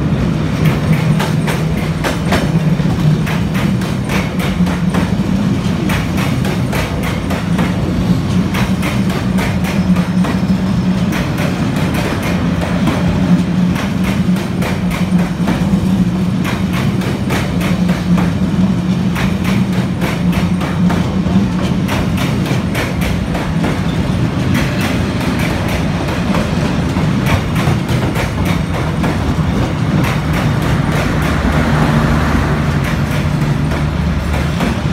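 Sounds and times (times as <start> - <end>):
train low hum: 0.0 - 34.9
train wheels clicking over rail joints: 0.0 - 34.9.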